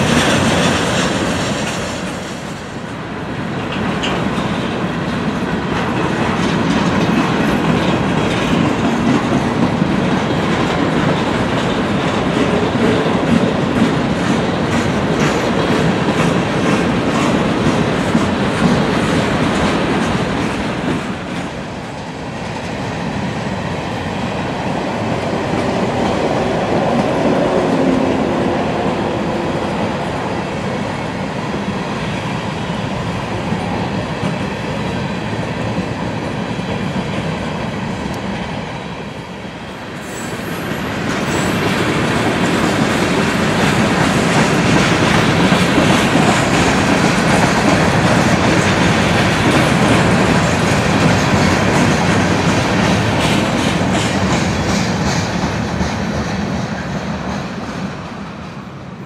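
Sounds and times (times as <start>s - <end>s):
train wheels clattering over rail joints: 0.0s - 2.8s, 3.5s - 22.9s, 40.5s - 58.6s.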